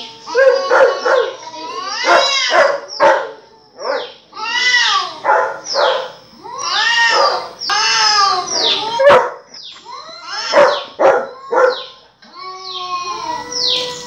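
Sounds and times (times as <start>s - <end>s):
dog barking and yowling: 0.0s - 4.2s, 5.1s - 7.6s, 8.5s - 9.5s, 10.3s - 12.0s.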